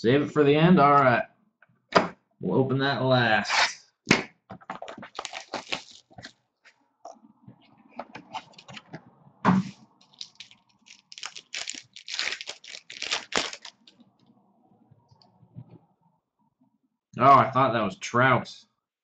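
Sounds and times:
plastic wrapper crinkling: 0:04.7 - 0:06.4, 0:10.0 - 0:14.1
plastic wrapper ripping: 0:04.8 - 0:06.3, 0:10.0 - 0:14.0.

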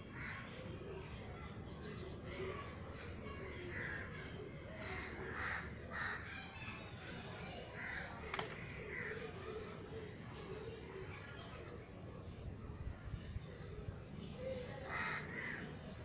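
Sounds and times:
crows cawing: 0:04.9 - 0:06.3, 0:14.9 - 0:15.7.

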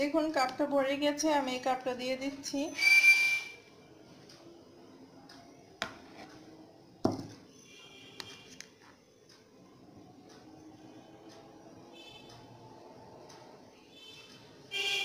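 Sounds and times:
cup knocking on bowl: 0:07.0 - 0:07.3.

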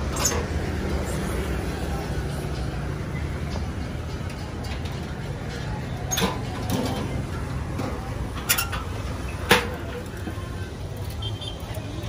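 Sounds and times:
street traffic rumble: 0:00.0 - 0:12.0
metal stove parts clanking: 0:03.5 - 0:10.0.

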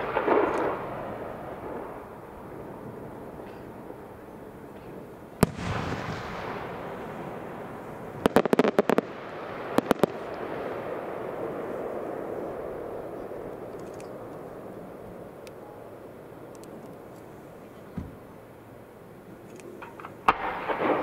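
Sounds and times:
crackling firework reports: 0:00.0 - 0:04.1, 0:05.4 - 0:15.1, 0:20.2 - 0:21.0
firework bang: 0:05.4 - 0:10.1.

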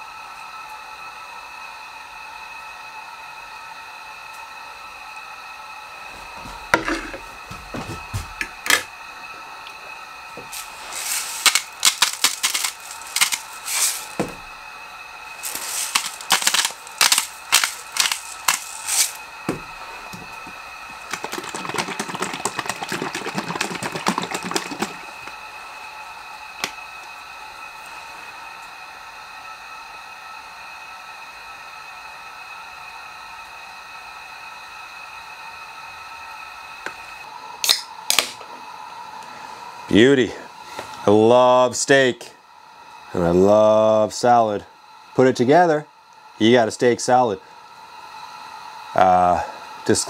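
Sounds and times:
seasoning grinder rasping: 0:06.1 - 0:08.9, 0:10.4 - 0:25.6.

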